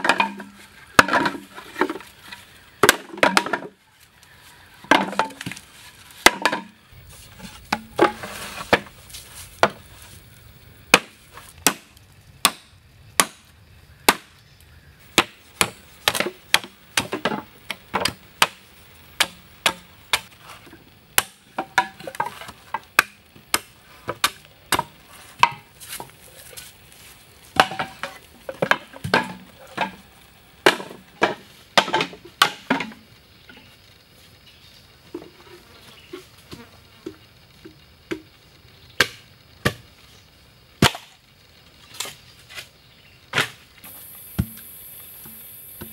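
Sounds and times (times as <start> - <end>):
machete chopping bamboo: 0.0 - 2.0, 2.8 - 3.8, 6.2 - 6.8, 9.6 - 9.8, 10.9 - 13.5, 14.1 - 14.4, 15.1 - 20.4, 21.2 - 26.5, 27.6 - 30.0, 30.6 - 33.0, 39.0 - 39.8, 40.8 - 41.2, 44.4 - 44.6.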